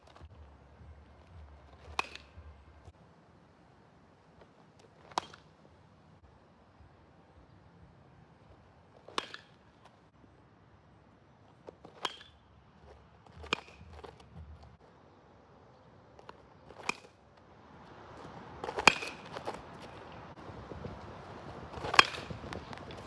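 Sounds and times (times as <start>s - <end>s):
baseball bat hitting balls: 0.0s - 2.9s, 4.9s - 5.6s, 8.6s - 10.0s, 11.6s - 14.8s, 16.2s - 17.3s, 18.6s - 20.4s, 21.5s - 23.0s.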